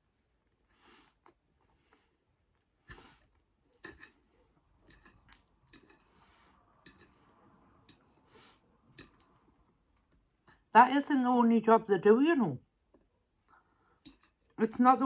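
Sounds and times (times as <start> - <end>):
knife and fork clinking on plate: 3.8 - 4.2.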